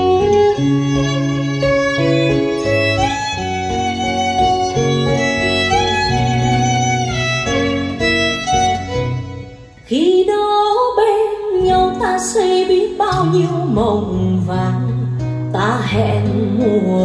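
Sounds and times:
violin melody: 0.0 - 10.4
guitar: 0.0 - 17.0.

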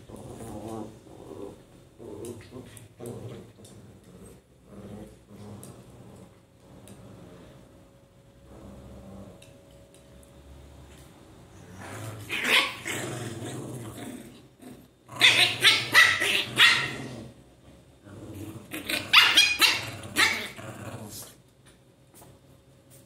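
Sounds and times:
small dogs growling and barking: 0.0 - 7.6, 8.4 - 9.7, 11.6 - 17.4, 18.0 - 21.4.

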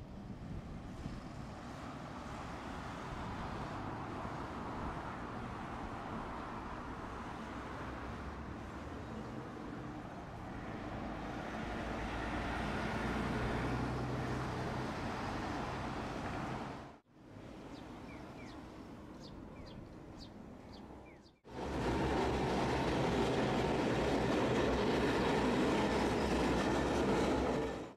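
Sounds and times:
streetcar rumbling on track: 21.5 - 27.9.

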